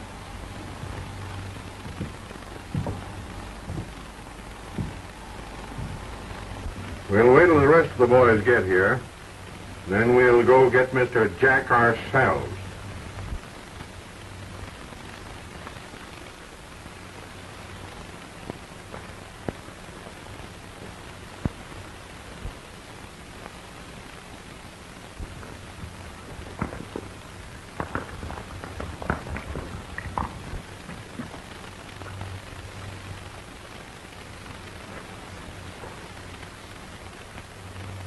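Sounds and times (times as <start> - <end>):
film soundtrack hiss: 0.0 - 38.0
clicks and pops: 25.2 - 32.3.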